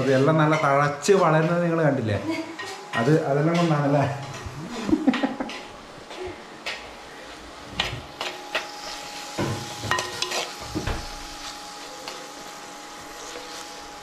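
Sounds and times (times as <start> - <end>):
onions sizzling in oil: 6.9 - 14.0.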